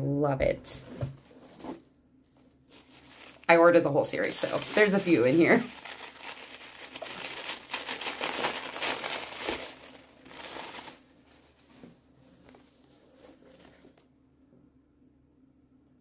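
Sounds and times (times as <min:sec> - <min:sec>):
tissue paper crinkling: 0:02.3 - 0:14.0
faint handling sounds: 0:04.2 - 0:14.1.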